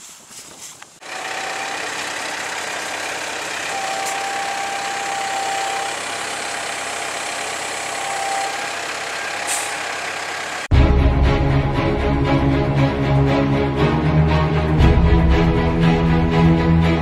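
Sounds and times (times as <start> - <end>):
tractor diesel engine running: 1.0 - 10.8.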